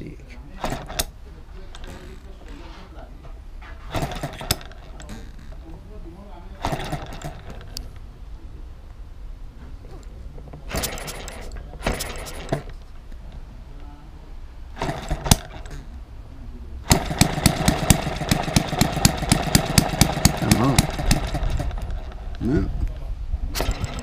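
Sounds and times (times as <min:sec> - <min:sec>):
small engine clattering bursts: 0:00.6 - 0:02.5, 0:03.9 - 0:05.7, 0:06.6 - 0:07.8, 0:10.6 - 0:12.8, 0:14.8 - 0:15.8, 0:16.9 - 0:22.5, 0:23.5 - 0:24.0
small engine running rapidly: 0:03.9 - 0:05.1, 0:06.6 - 0:07.6, 0:10.7 - 0:12.7, 0:14.8 - 0:15.7, 0:16.9 - 0:22.4, 0:23.5 - 0:24.0.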